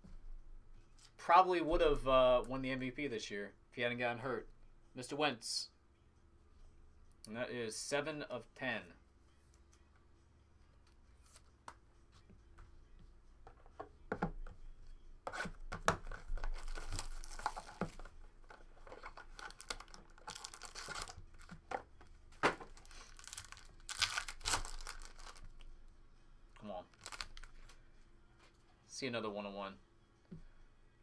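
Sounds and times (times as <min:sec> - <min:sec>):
wrapper tearing and crinkling: 0:16.4 - 0:17.8, 0:19.1 - 0:21.5, 0:22.8 - 0:25.6, 0:26.9 - 0:27.5
foil pack crinkling: 0:19.1 - 0:21.5, 0:22.8 - 0:25.5, 0:26.9 - 0:27.6.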